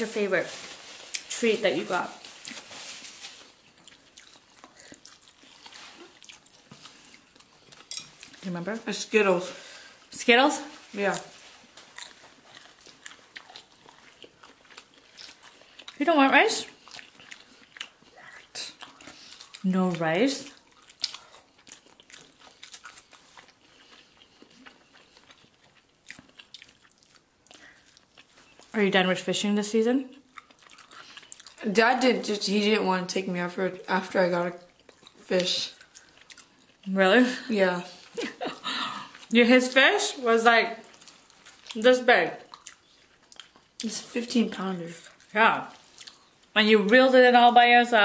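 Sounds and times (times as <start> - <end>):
person chewing noodles: 2.2 - 8.4, 10.7 - 16.0, 16.6 - 28.8, 30.1 - 31.6, 34.6 - 36.9, 37.9 - 39.4, 40.8 - 41.8, 42.4 - 44.1, 45.0 - 46.6.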